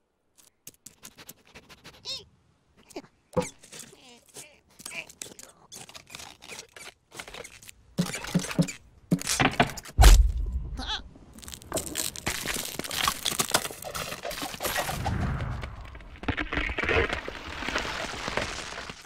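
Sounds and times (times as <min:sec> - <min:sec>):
cartoon squirrel squeaks and grunts: 0:01.8 - 0:08.7
ice cracking: 0:11.3 - 0:15.0, 0:15.7 - 0:19.0.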